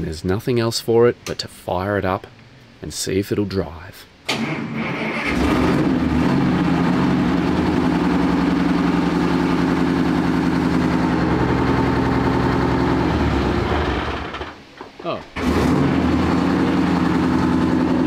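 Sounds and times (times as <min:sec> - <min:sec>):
tank engine idling: 0:05.9 - 0:14.5, 0:15.4 - 0:18.0.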